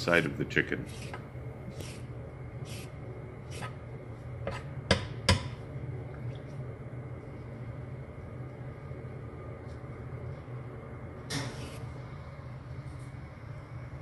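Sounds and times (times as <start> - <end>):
steady low hum: 0.0 - 14.0
vegetable peeler rasping: 0.9 - 1.2.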